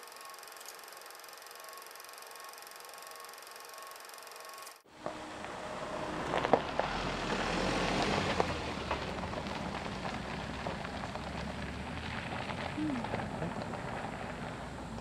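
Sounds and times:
low engine rumble: 4.9 - 15.0
tyres crunching on gravel: 5.0 - 15.0.

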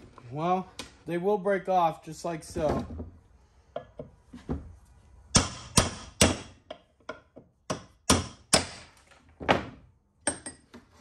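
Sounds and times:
hammer striking steel punch: 5.3 - 8.9.

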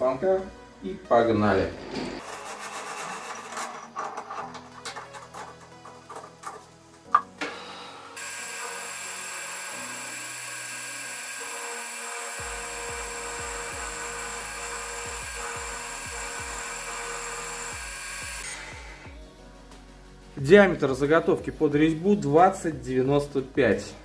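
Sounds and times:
lathe spindle whine: 7.4 - 19.0.

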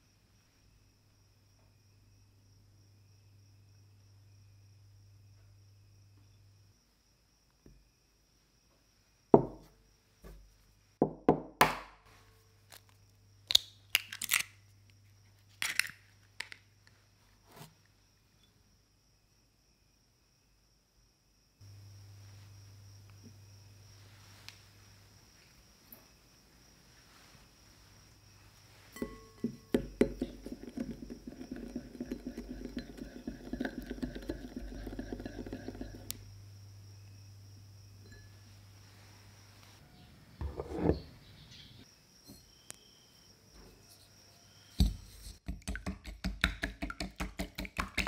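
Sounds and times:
ceramic knock on table: 9.4 - 9.7
eggshell cracking: 13.5 - 14.6, 15.5 - 16.6, 45.4 - 48.0
egg tapping: 29.0 - 36.2, 44.8 - 48.0.

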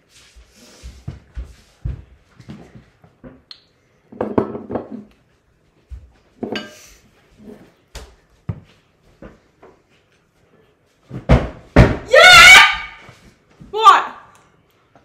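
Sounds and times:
bowls and utensils clattering: 6.4 - 7.0.

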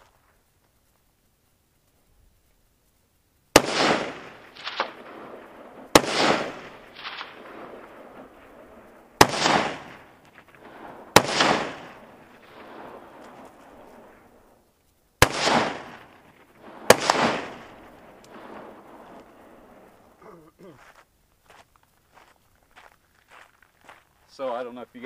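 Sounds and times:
rifle shots with echo: 3.5 - 14.5, 15.2 - 20.1
faint distant gunshot crack: 3.6 - 14.2, 15.2 - 19.9.

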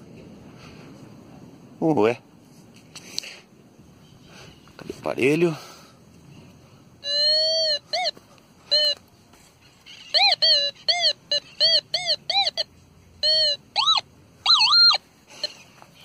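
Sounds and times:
metal detector beeps: 7.0 - 9.0, 10.0 - 15.6.

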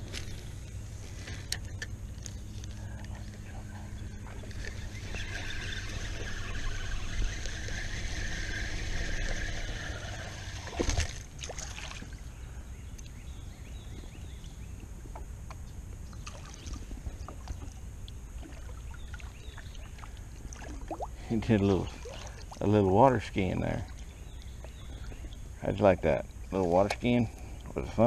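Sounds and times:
light water sounds: 0.0 - 13.2, 16.0 - 28.0
fish splashing: 4.3 - 12.2, 18.4 - 22.7.

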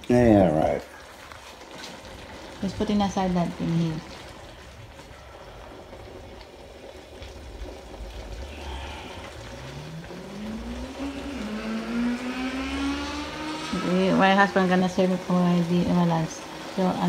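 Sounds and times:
engine rising in pitch: 8.0 - 16.8.

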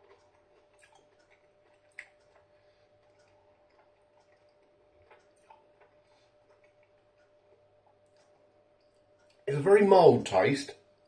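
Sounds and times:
mouth clicks from chewing: 0.0 - 9.4
faint steady hum: 0.0 - 11.0.

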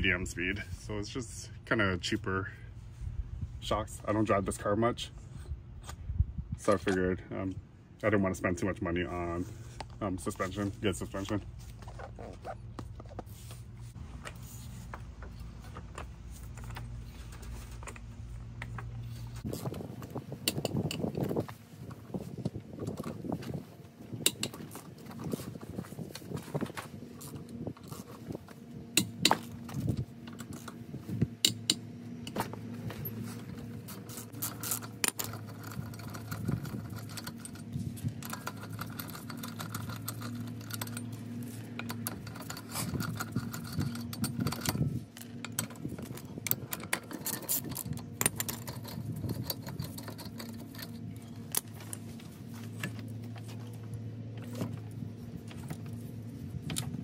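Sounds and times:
steady low hum: 0.0 - 57.0
metal clinking of lug nuts: 31.4 - 52.1.

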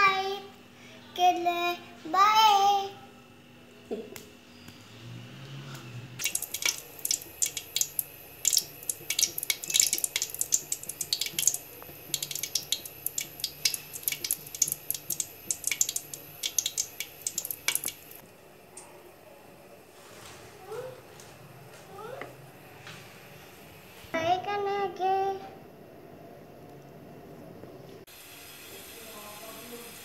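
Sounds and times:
hot oil crackling and spitting: 6.2 - 18.2.

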